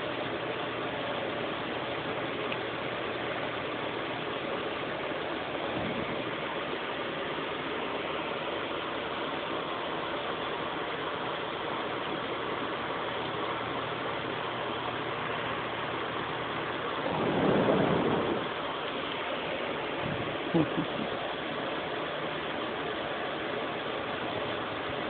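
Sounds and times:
box fan whooshing: 0:16.5 - 0:20.6.

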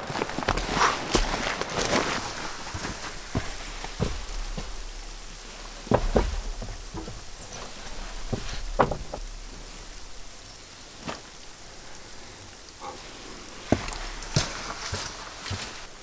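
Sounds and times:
steady faint hiss: 0:00.0 - 0:16.0
knocks and taps on wood: 0:03.3 - 0:10.1.

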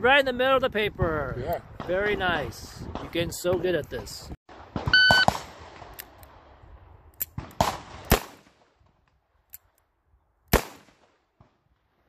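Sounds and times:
revolver gunshots with echo: 0:07.3 - 0:08.8, 0:10.5 - 0:11.4.

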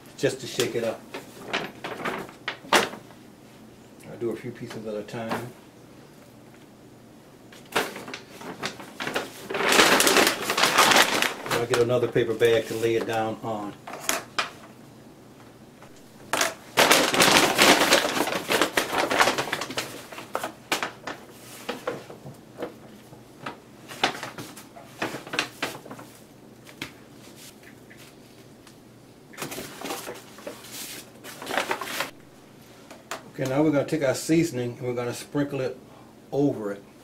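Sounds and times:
paper bag rustling and crinkling: 0:00.5 - 0:03.2, 0:07.5 - 0:14.7, 0:16.3 - 0:28.5, 0:29.4 - 0:32.2.

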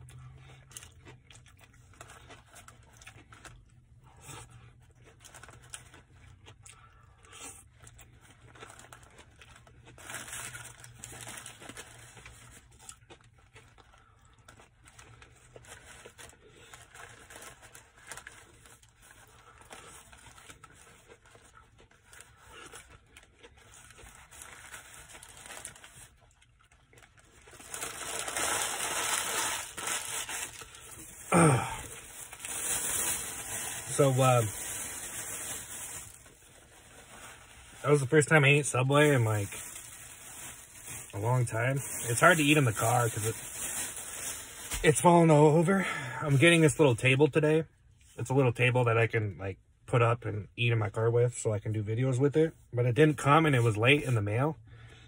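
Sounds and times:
soft chewing: 0:00.0 - 0:10.0
paper wrapper crinkling: 0:07.8 - 0:45.1.

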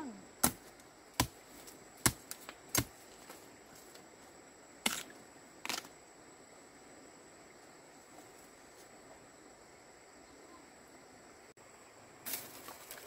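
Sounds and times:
faint high-pitched tone: 0:10.2 - 0:11.0.

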